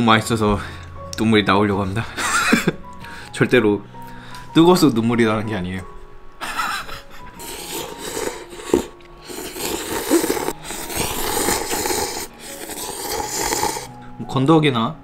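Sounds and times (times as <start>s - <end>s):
person slurping noodles: 7.4s - 13.9s.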